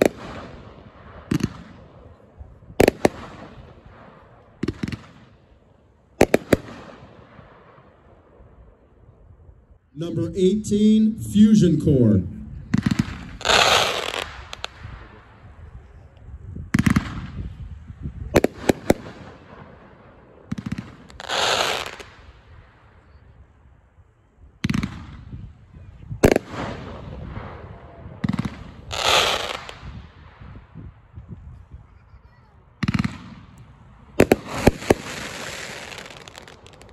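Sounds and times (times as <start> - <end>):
firework crackling rush: 6.2 - 7.4, 10.0 - 15.6, 16.7 - 22.6, 26.2 - 30.0, 32.8 - 36.9.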